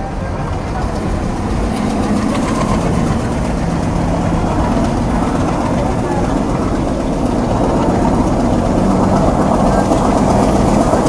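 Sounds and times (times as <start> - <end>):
diesel locomotive chugging: 0.0 - 11.0.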